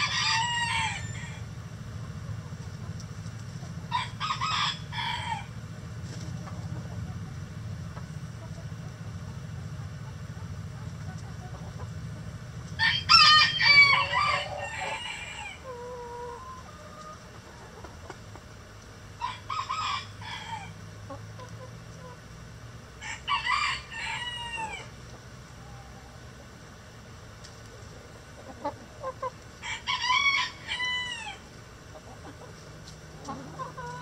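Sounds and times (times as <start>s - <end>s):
rooster crowing: 0.0s - 1.5s, 3.9s - 5.6s, 12.8s - 15.7s, 19.2s - 20.8s, 23.0s - 24.9s, 29.6s - 31.4s
hens clucking: 0.0s - 34.0s.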